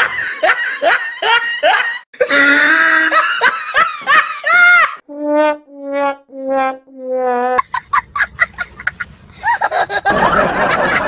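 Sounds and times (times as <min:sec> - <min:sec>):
laugh track: 0:00.0 - 0:05.0, 0:07.6 - 0:11.0.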